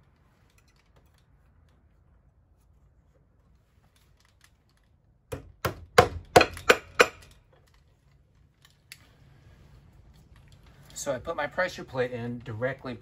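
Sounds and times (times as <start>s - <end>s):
hammer striking nail: 5.3s - 7.3s.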